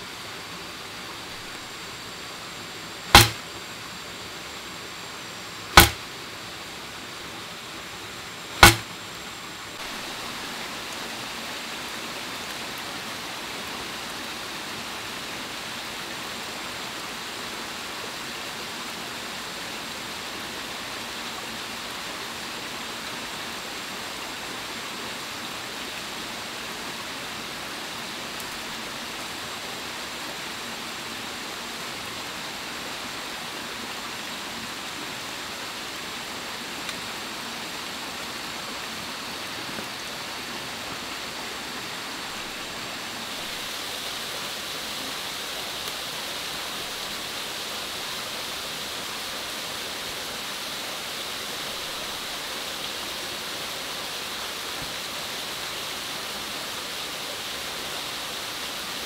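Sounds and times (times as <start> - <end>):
stream rushing: 0.0 - 59.0
crossbow bolts hitting plant trunk: 3.1 - 3.5, 5.7 - 6.1, 8.6 - 8.9.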